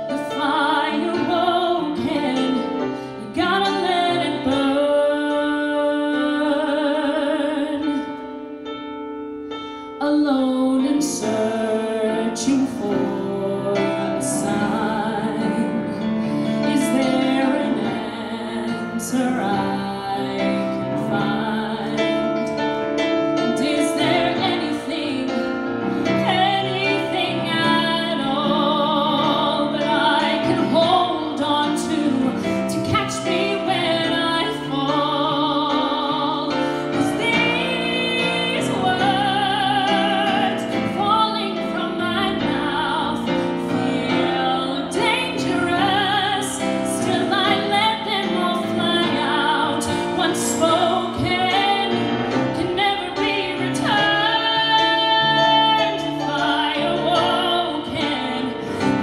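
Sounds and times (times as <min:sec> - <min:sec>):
woman singing a ballad: 0:00.0 - 0:08.5, 0:09.7 - 0:59.0
piano accompaniment: 0:00.0 - 0:59.0.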